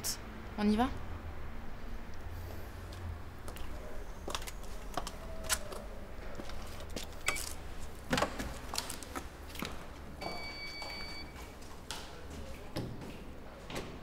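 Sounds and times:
footsteps: 2.4 - 7.2
keypad beep: 10.2 - 11.4.

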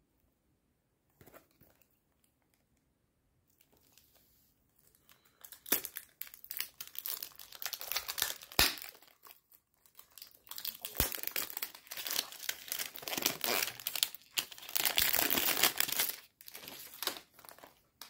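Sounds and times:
shrink-wrap crinkling and tearing: 4.9 - 18.0.

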